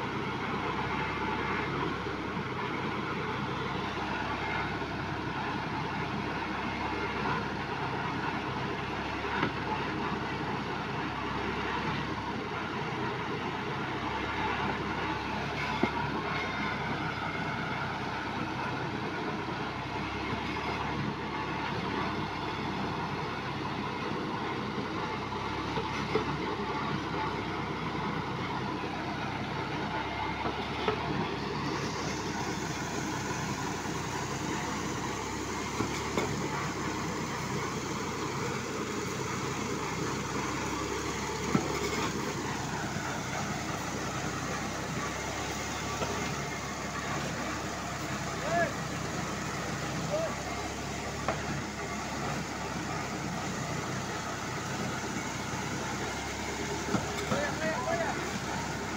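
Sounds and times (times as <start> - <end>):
engine running: 0.0 - 58.9.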